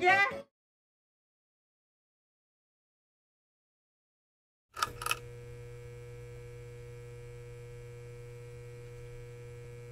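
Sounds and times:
steady electrical hum: 4.8 - 9.9.

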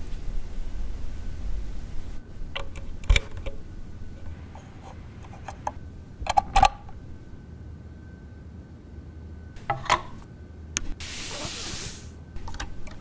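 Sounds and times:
cable handling noise: 2.4 - 7.3, 12.4 - 13.0.

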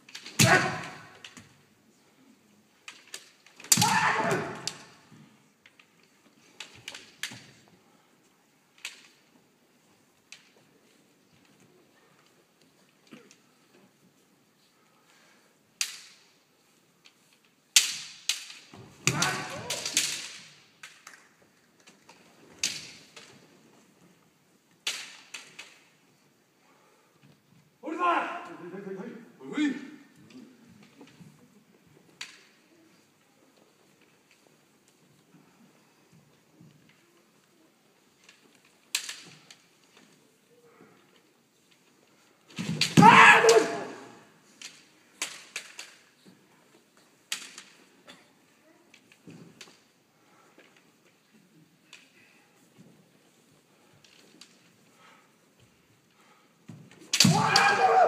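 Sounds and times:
bamboo swords clacking: 0.0 - 1.6, 2.8 - 7.8, 8.7 - 13.5, 15.8 - 24.1, 24.7 - 26.1, 37.9 - 48.2, 56.7 - 58.0
kendo strikes echoing in hall: 0.2 - 1.4, 3.7 - 5.1, 17.9 - 20.6, 57.1 - 58.0
person shouting: 0.4 - 1.1, 3.7 - 4.8, 19.1 - 20.0, 27.8 - 28.6, 43.0 - 44.1, 57.2 - 58.0
sharp crack of strike: 57.1 - 58.0.

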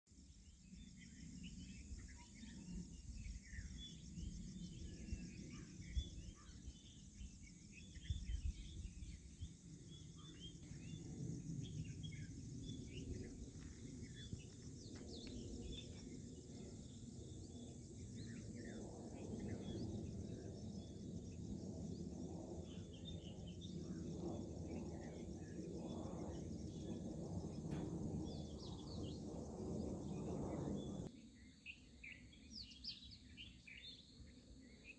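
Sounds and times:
high insect drone: 0.4 - 32.7
low rumble: 23.4 - 31.1.

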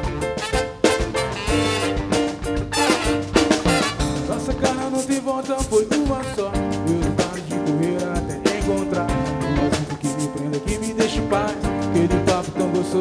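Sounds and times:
drums and percussion: 0.0 - 13.0
man singing lead vocal: 4.2 - 13.0.

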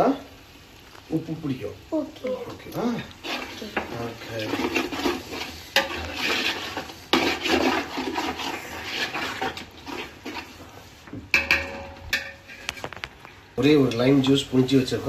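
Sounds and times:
ladle scraping metal pot: 3.0 - 14.2
ladle knocking against pot: 11.3 - 12.4.

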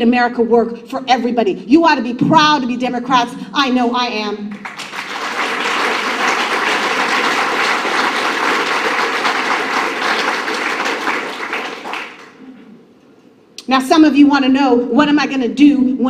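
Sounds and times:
audience applauding: 4.5 - 12.4.

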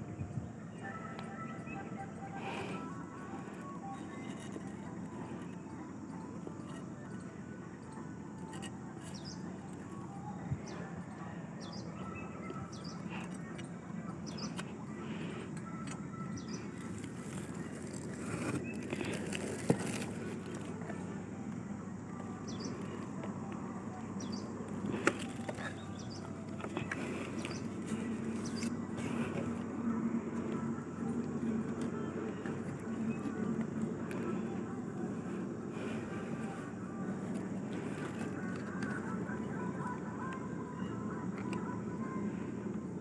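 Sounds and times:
steady outdoor noise: 0.0 - 43.0
bird chirps: 7.8 - 15.3
palm fronds rustling: 16.6 - 21.1, 31.5 - 39.3.

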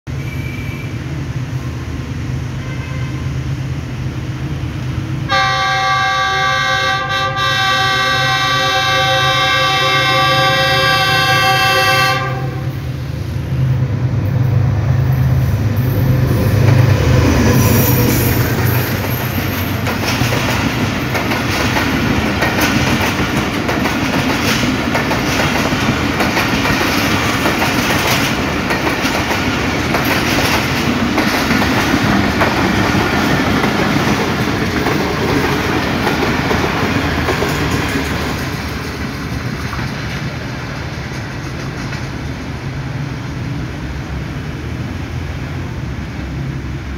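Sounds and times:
diesel locomotive engine drone: 0.1 - 46.9
train wheels clickety-clack: 14.3 - 43.5.

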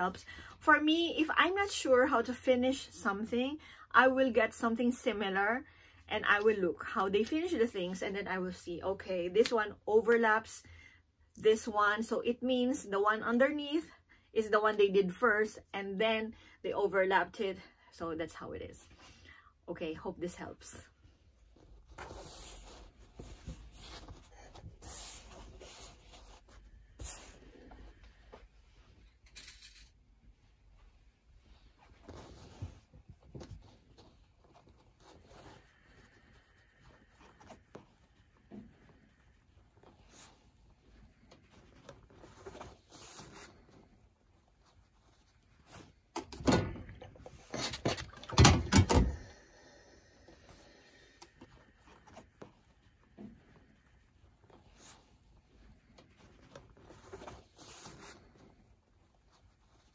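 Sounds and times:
fabric rustling and brushing: 21.0 - 29.2, 30.0 - 46.1, 51.4 - 59.9
fabric rubbing: 21.0 - 46.1, 50.4 - 59.9.

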